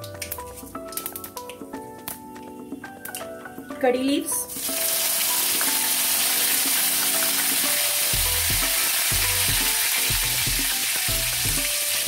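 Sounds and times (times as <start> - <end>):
soft music with steady beat: 0.0 - 12.0
seeds sizzling in hot oil: 4.5 - 12.0.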